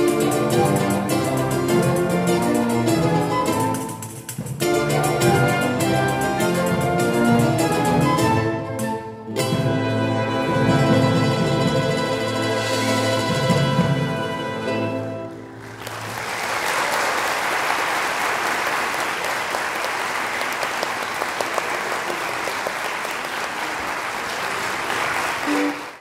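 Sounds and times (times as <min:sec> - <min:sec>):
audience applause: 0:15.4 - 0:26.0.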